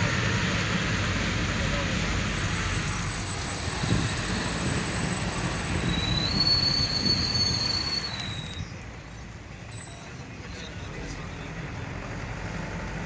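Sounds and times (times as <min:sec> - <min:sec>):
vehicle road and engine rumble: 0:00.0 - 0:13.0
high-pitched squealing tones: 0:02.2 - 0:08.8.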